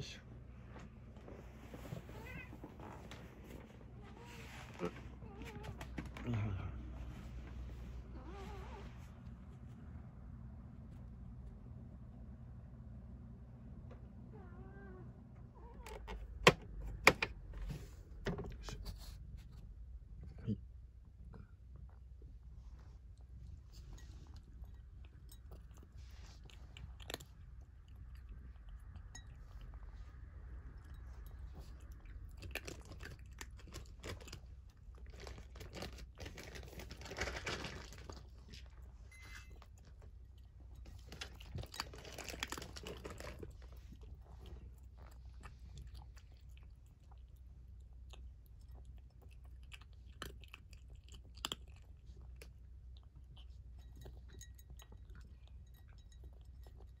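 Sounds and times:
cat crunching food: 23.0 - 57.0.

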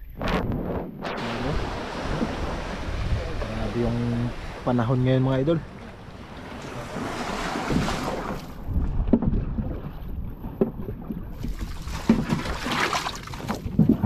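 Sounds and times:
wind buffeting microphone: 0.0 - 14.0
small waves washing on beach: 1.0 - 14.0
dull thumps: 13.4 - 14.0.

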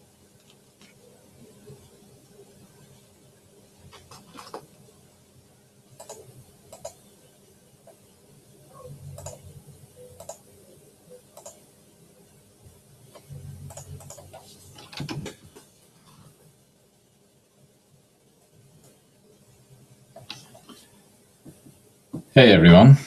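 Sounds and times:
faint clicks and taps: 0.4 - 1.0, 18.8 - 19.0, 20.2 - 22.3.

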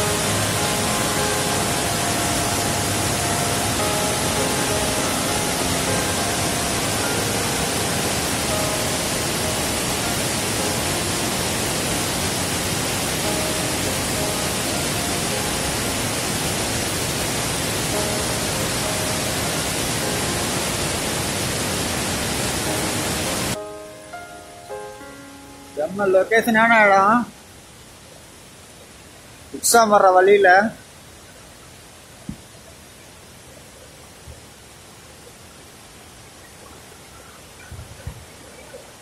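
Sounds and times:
faint music: 0.0 - 29.0
waterfall roaring: 0.0 - 39.0.

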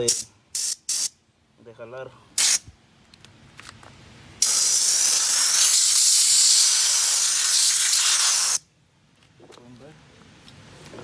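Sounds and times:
compressed-air blowgun hissing: 4.4 - 8.6.

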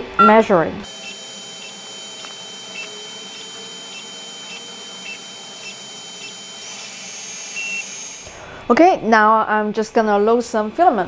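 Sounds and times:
printer motors and fans whining: 0.8 - 8.4.

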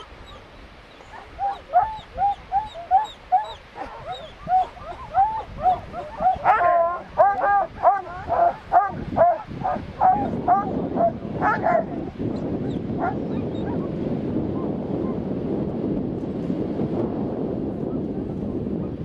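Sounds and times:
dogs barking and yelping: 0.0 - 13.9.

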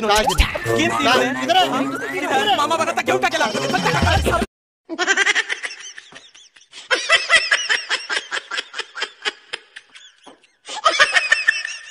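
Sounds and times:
high-pitched voice laughing: 4.9 - 7.6.

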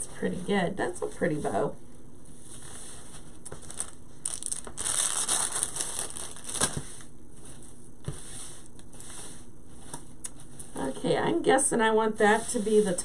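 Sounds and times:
plastic bag crinkling: 3.4 - 7.1.

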